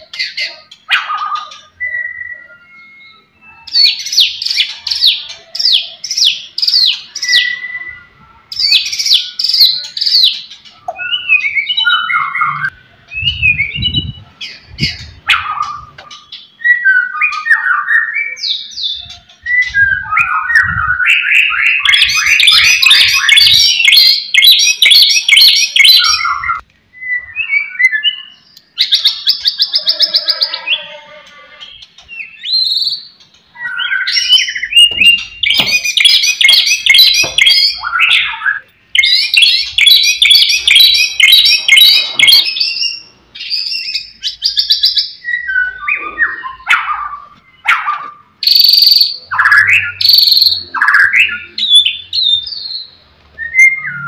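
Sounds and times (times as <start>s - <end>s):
bird singing varied song: 0.0s - 31.0s, 31.6s - 54.0s
bird chattering trill: 34.2s - 38.4s, 39.0s - 43.0s, 48.4s - 52.0s.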